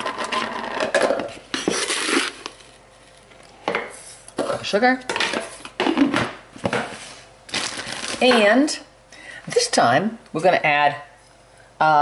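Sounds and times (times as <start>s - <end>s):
cup scooping sugar: 1.6s - 2.7s.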